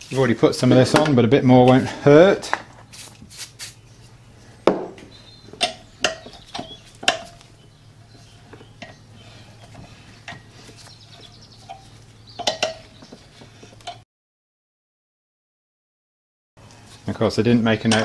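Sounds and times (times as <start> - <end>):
spanner clinking on metal: 11.7 - 12.9.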